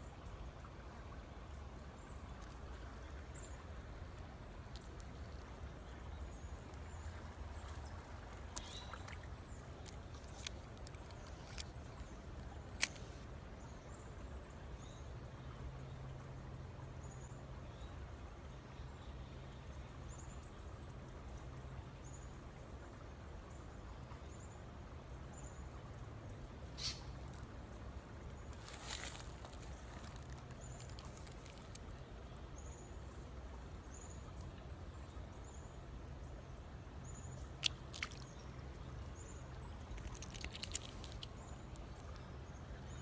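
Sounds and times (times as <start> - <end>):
fishing reel clicks and rustles: 7.6 - 12.1, 12.7 - 13.2, 28.5 - 31.9, 39.9 - 42.2.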